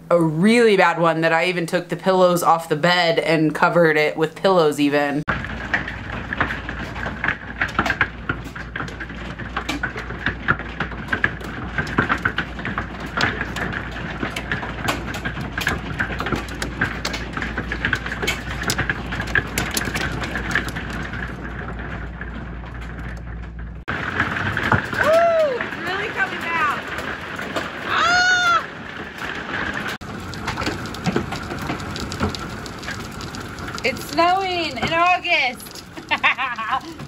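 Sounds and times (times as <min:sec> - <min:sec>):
hail rattling on vehicle roof: 0:05.3 - 0:37.0
steady rain hiss: 0:23.9 - 0:37.0.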